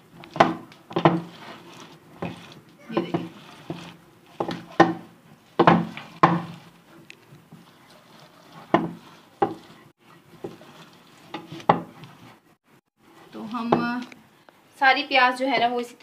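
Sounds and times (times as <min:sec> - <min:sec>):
hand meat mincer knocking: 0:04.4 - 0:06.6.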